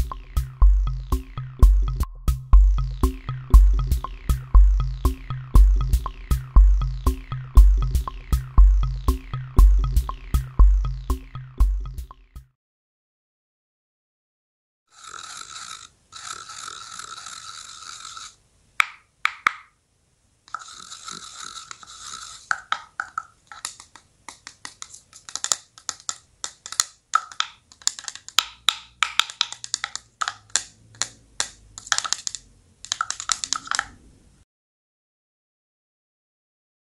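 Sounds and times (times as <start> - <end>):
scratchy hissing noise bursts: 20.5 - 25.4
sharp clicks and knocks: 22.5 - 34.0.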